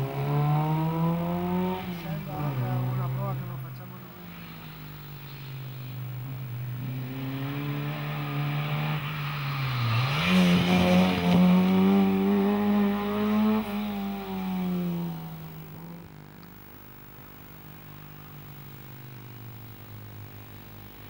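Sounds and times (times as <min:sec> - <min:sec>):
rally car engine passing: 0:00.0 - 0:16.2.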